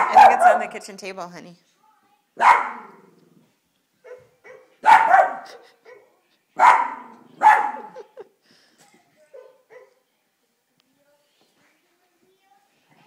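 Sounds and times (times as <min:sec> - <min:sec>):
small dog barking: 0:00.0 - 0:00.7, 0:02.4 - 0:03.0, 0:04.0 - 0:06.0, 0:06.6 - 0:08.0.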